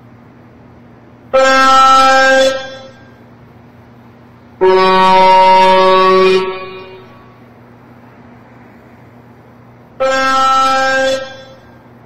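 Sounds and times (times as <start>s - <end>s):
highway traffic drone: 0.0s - 12.0s
truck horn blasts: 1.3s - 3.2s, 4.6s - 7.4s, 10.0s - 11.9s.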